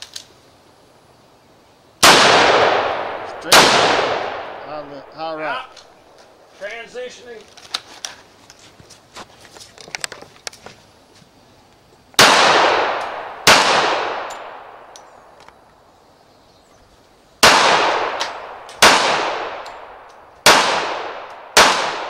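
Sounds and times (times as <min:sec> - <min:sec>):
pistol shots with echo: 0:02.0 - 0:05.1, 0:12.2 - 0:14.9, 0:17.4 - 0:22.0.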